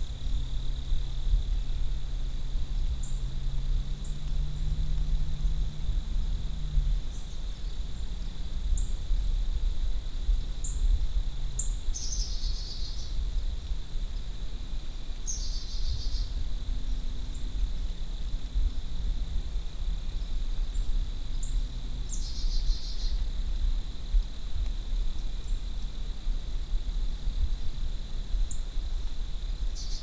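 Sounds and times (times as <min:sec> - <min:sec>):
steady low rumble: 0:00.0 - 0:30.0
birds chirping: 0:11.6 - 0:13.2, 0:15.2 - 0:17.6.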